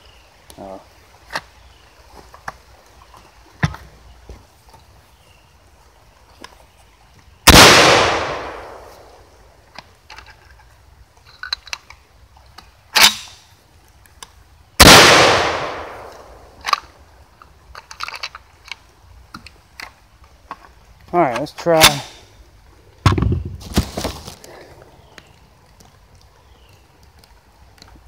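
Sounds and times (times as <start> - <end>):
shotgun shots echoing: 7.5 - 9.2, 14.8 - 16.6
gun handling clicks: 14.0 - 20.7.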